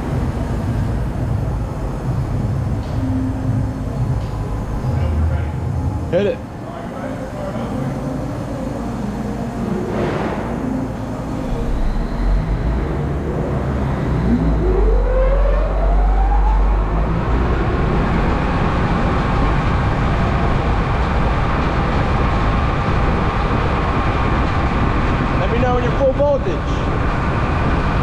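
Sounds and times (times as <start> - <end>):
mixer motor whining: 7.2 - 21.9.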